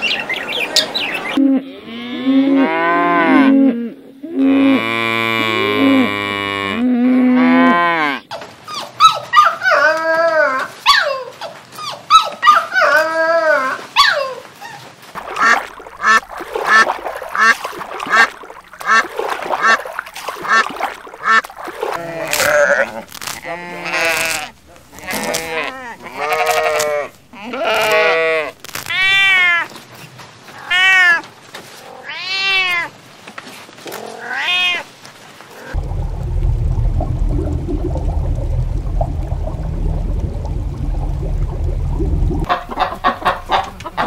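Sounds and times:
cattle mooing: 1.6s - 8.2s
ducks quacking: 15.2s - 22.5s, 42.4s - 44.0s.

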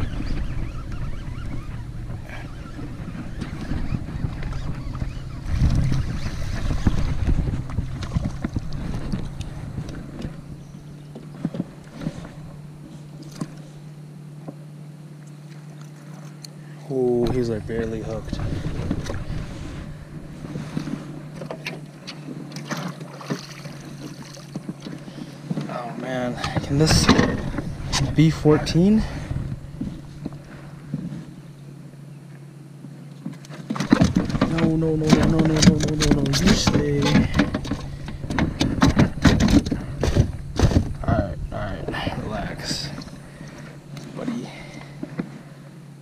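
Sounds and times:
wind rumbling on microphone: 0.0s - 13.6s, 17.0s - 21.4s, 23.7s - 31.7s, 33.8s - 43.9s
water splashing against hull: 0.0s - 46.0s.

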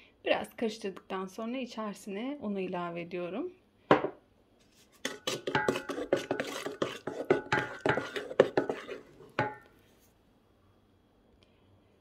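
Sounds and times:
wooden spoon knocking metal bowl: 5.0s - 9.7s.

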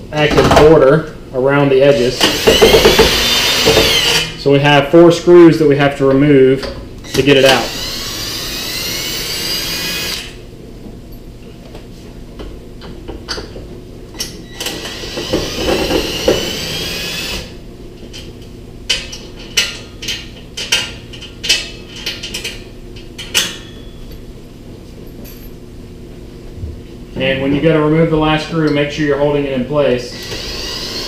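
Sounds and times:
cordless drill motor whining: 2.2s - 4.3s, 7.1s - 10.4s, 14.6s - 17.5s, 30.1s - 31.0s.

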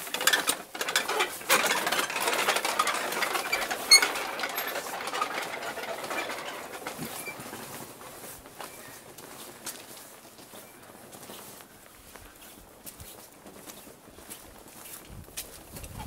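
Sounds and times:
prayer wheels rattling and squeaking: 0.0s - 9.9s.

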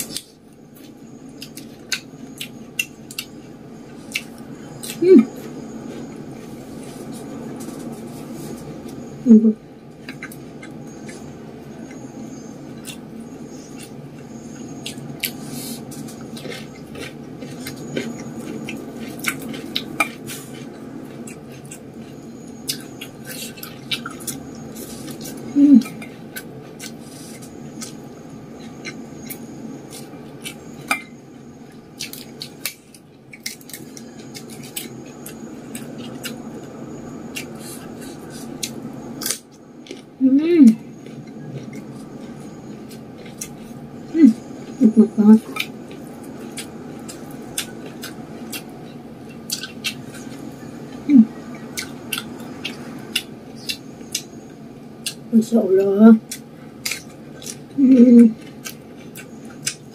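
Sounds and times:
chewing and mouth clicks: 0.0s - 9.1s, 9.9s - 44.8s, 45.4s - 59.9s
low background hum: 0.0s - 59.9s
person humming: 5.0s - 5.3s, 9.2s - 9.6s, 25.6s - 25.9s, 51.1s - 51.3s.

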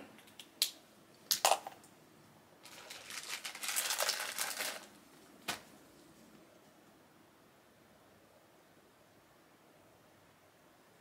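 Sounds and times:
rustling and crinkling handling noise: 2.6s - 6.8s.

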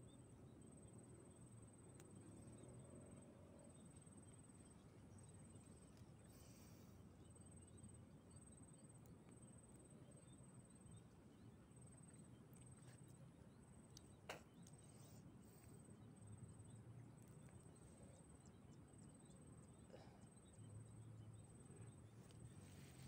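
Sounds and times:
faint click: 1.9s - 2.2s.

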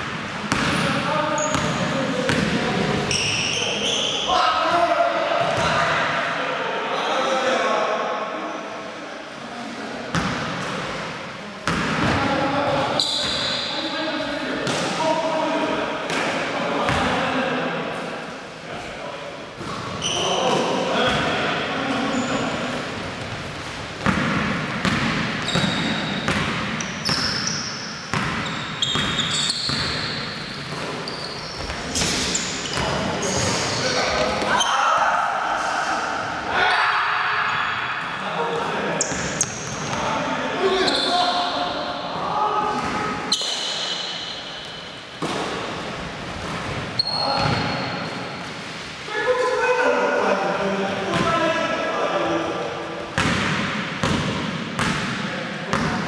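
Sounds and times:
basketball bouncing on gym floor: 0.0s - 2.6s, 24.0s - 27.4s, 28.1s - 30.9s, 47.4s - 47.8s, 53.2s - 56.0s
sneaker squeaks: 0.5s - 4.4s, 11.7s - 13.8s, 19.6s - 21.2s, 21.9s - 35.0s, 39.0s - 42.0s, 42.8s - 45.2s, 46.3s - 48.5s.

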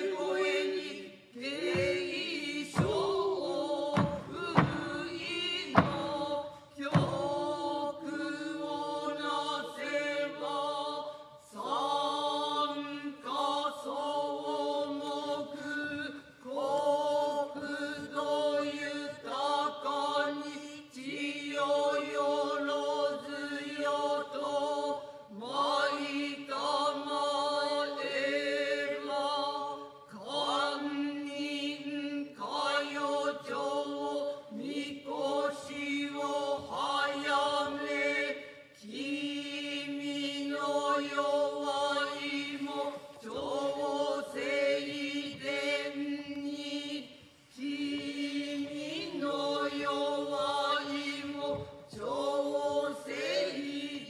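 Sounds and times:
chorus chanting in unison: 0.0s - 54.0s
sharp knocks: 1.6s - 7.6s.

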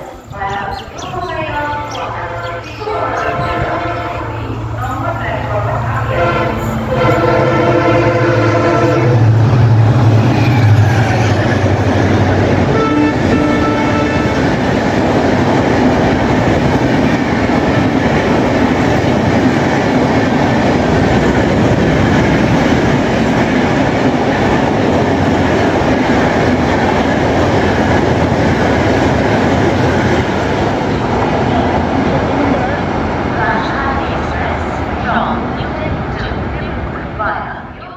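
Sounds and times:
train wheels clattering on rails: 8.8s - 34.5s.

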